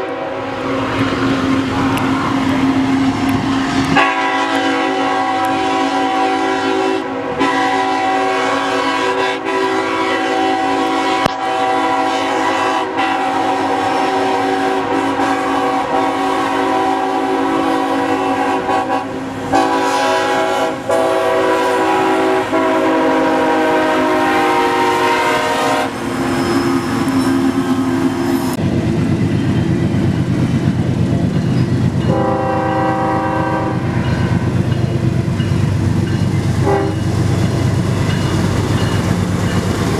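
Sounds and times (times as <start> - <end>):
locomotive horn blasts: 0.0 - 0.6, 3.5 - 28.1, 32.1 - 34.5, 36.6 - 37.0
train rumble and wheel noise: 0.0 - 39.9.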